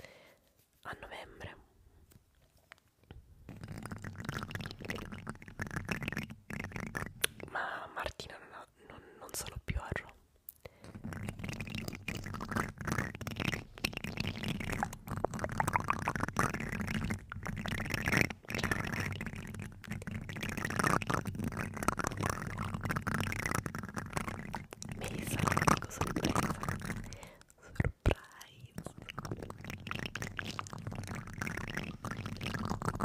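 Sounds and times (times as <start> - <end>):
plastic spoons scraping microphone: 10.8 - 33.0.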